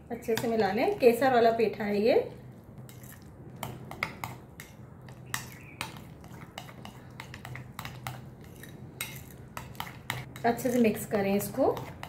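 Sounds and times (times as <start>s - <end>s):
spoon scraping glass bowl: 2.9s - 12.0s.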